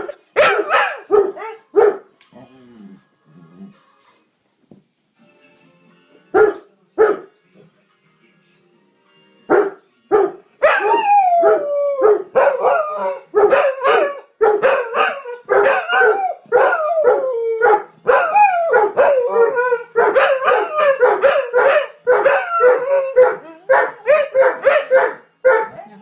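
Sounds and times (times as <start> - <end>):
dogs barking: 0.0 - 2.1, 6.4 - 7.3, 9.5 - 26.0
dogs howling: 10.7 - 26.0.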